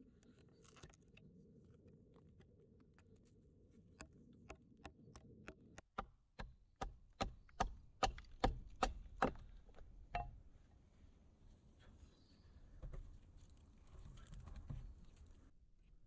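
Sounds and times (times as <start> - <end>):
hatchet chopping wood: 5.8 - 10.4.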